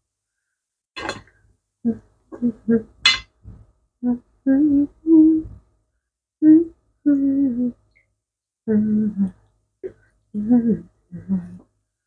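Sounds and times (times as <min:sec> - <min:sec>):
woman humming a tune: 0:04.0 - 0:05.6, 0:06.4 - 0:07.8, 0:08.6 - 0:09.4, 0:10.3 - 0:11.6.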